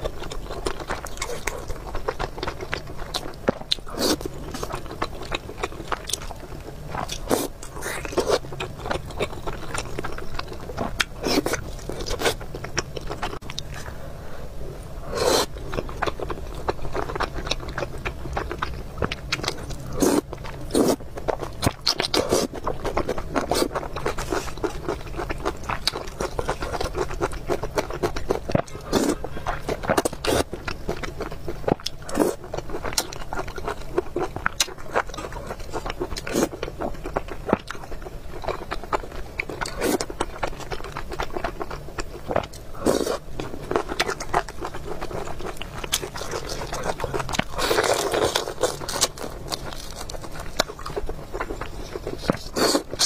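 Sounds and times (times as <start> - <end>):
chewing and biting: 0.0 - 13.9, 15.2 - 53.0
low steady hum: 0.0 - 53.0
scrape: 23.6 - 24.6.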